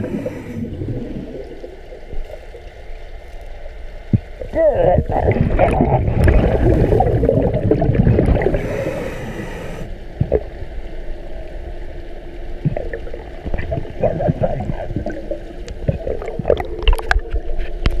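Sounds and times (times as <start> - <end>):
underwater breathing bubbles: 0.0 - 2.4, 4.4 - 10.5, 12.6 - 17.4.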